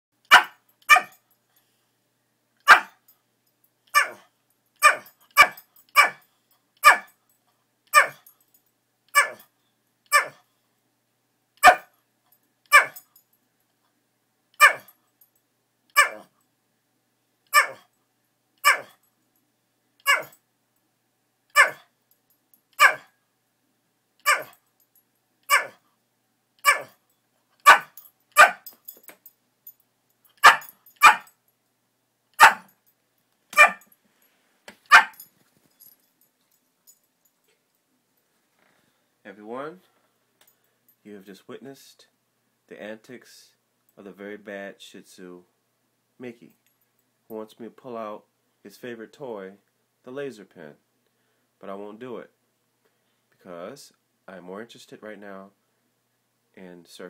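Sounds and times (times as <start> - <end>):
dog sharp barks: 0.3 - 1.2, 2.6 - 3.0, 3.9 - 6.2, 6.8 - 7.1, 7.9 - 8.2, 9.1 - 9.5, 10.1 - 10.4, 11.6 - 11.9, 12.7 - 13.0, 14.6 - 14.9, 16.0 - 16.3, 17.5 - 17.9, 18.6 - 19.0, 20.0 - 20.3, 21.5 - 21.9, 22.8 - 23.1, 24.2 - 24.6, 25.5 - 25.8, 26.6 - 27.0, 27.6 - 28.7, 30.4 - 31.3, 32.4 - 32.7, 33.5 - 33.9, 34.9 - 35.2.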